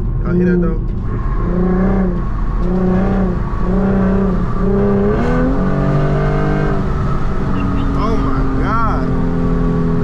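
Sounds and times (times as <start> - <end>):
car engine and exhaust drone: 0.0 - 10.0.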